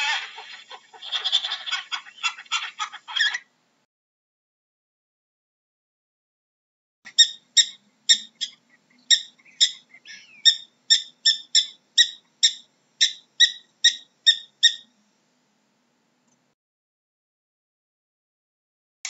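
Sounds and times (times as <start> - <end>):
prairie dog chirping barks: 7.1 - 14.9.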